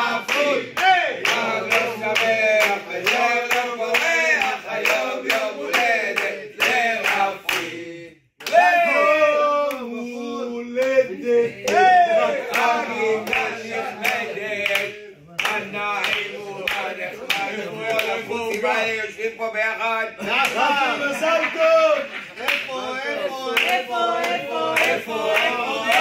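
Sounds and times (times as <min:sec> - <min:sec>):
people clapping in rhythm: 0:00.0 - 0:19.1, 0:20.2 - 0:26.0
group singing birthday song: 0:00.0 - 0:26.0.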